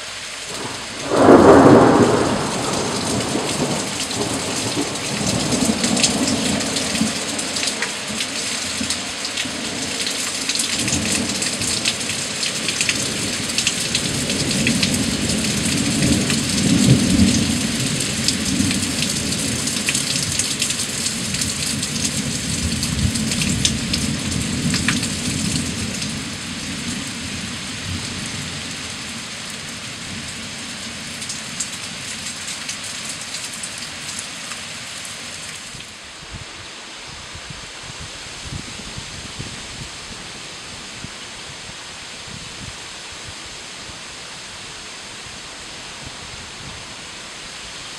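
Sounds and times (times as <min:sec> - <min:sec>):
heavy rain in woodland: 0:00.0 - 0:47.9
rolling thunder: 0:00.5 - 0:07.1.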